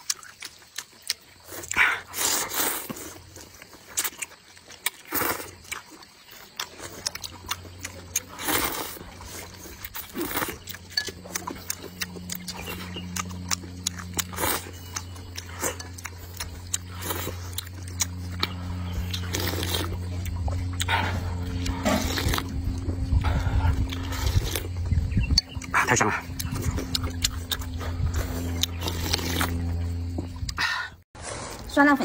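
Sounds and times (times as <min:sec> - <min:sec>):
chewing: 0:00.0 - 0:31.7
low steady hum: 0:05.6 - 0:32.0.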